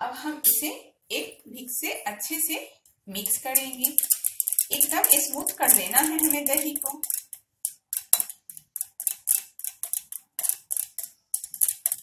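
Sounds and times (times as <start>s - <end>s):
whisk scraping glass bowl: 3.2s - 12.0s.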